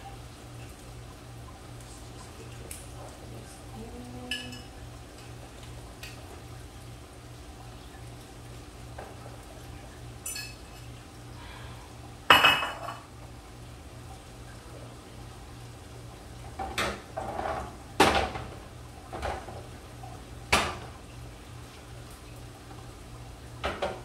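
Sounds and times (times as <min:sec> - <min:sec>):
metal cookware clattering: 0:10.2 - 0:10.8, 0:12.3 - 0:13.0.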